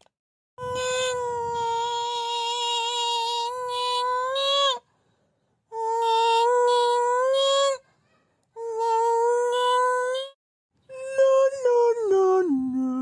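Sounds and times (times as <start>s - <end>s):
high voice holding a long note: 0.6s - 4.8s, 8.6s - 13.0s.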